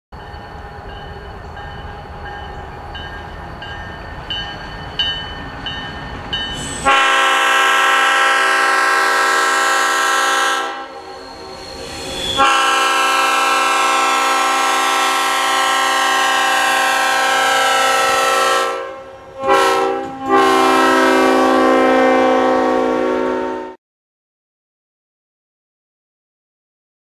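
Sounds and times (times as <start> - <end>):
locomotive engine rumbling: 0.1 - 23.0
locomotive air horn blasts: 6.8 - 11.6, 12.3 - 23.8.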